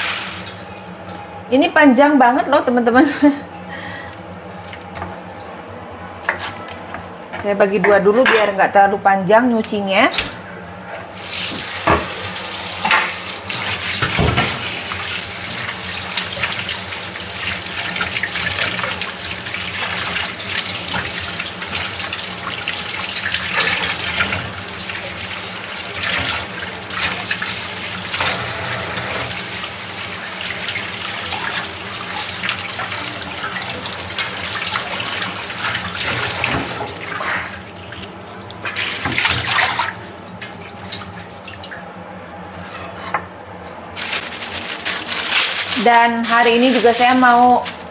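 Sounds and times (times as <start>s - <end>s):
water splashing off stems: 12.8s - 28.4s, 29.2s - 41.8s, 44.0s - 47.9s.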